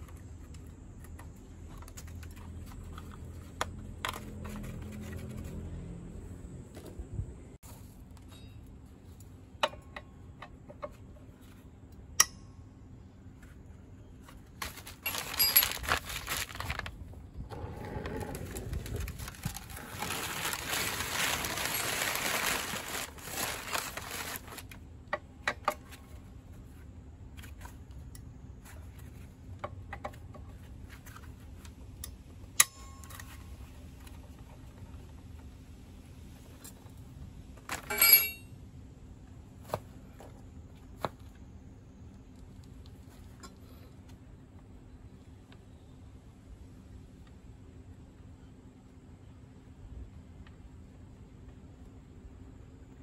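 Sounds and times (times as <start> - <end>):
plastic pan scraping over paper: 14.6 - 24.8
metal tools clinking: 15.0 - 16.5, 37.7 - 38.5.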